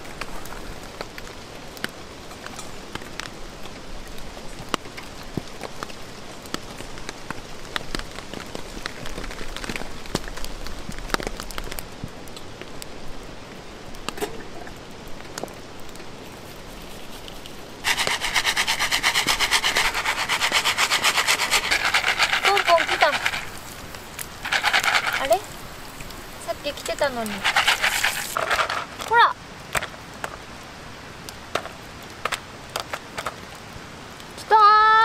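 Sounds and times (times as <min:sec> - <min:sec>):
fire crackling: 0:00.0 - 0:34.5
rain pattering: 0:00.0 - 0:35.0
popcorn kernels rattling in a pan: 0:17.8 - 0:25.8, 0:26.4 - 0:29.2.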